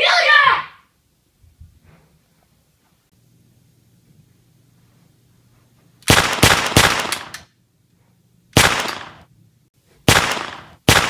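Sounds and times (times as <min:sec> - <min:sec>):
gunshots with ringing decay: 0:06.1 - 0:07.3, 0:08.6 - 0:09.2, 0:10.1 - 0:11.0.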